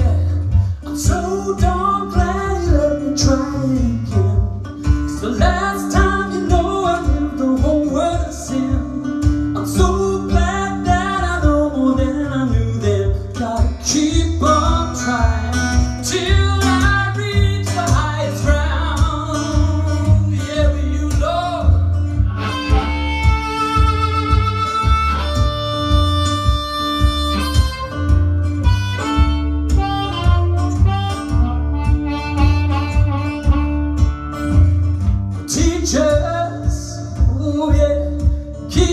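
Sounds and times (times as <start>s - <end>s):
acoustic guitar: 0.0s - 38.9s
harmonica bending notes: 21.5s - 35.2s.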